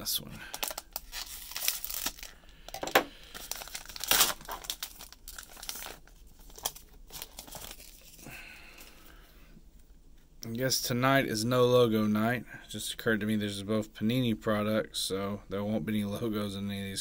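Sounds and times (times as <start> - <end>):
plastic wrapper crinkling: 0.4 - 8.3.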